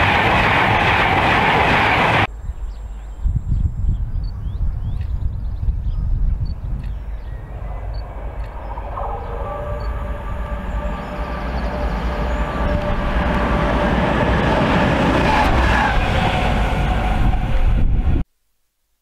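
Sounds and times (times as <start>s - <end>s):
diesel locomotive passing: 0.0s - 2.3s, 7.2s - 18.2s
steady whine: 7.2s - 18.2s.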